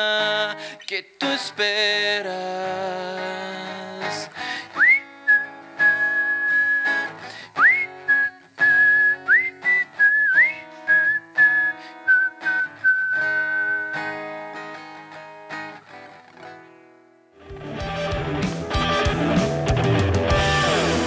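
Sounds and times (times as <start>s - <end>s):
strummed acoustic guitar: 0.0s - 21.0s
man whistling melody: 4.6s - 14.3s
loud band music: 17.5s - 21.0s.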